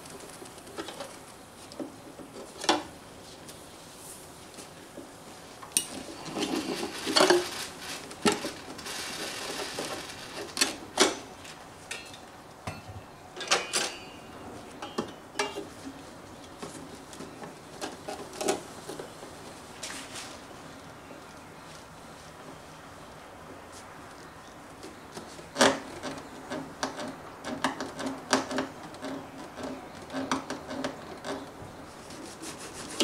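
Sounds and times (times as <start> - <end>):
metal tools clinking and scraping: 11.9 - 15.7.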